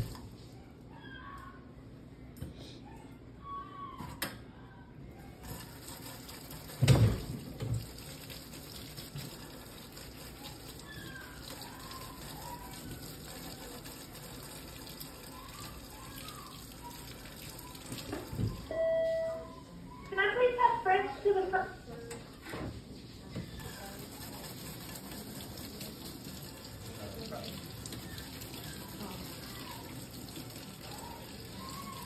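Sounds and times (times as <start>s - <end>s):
tap water running into sink: 5.4s - 18.7s, 23.4s - 32.0s.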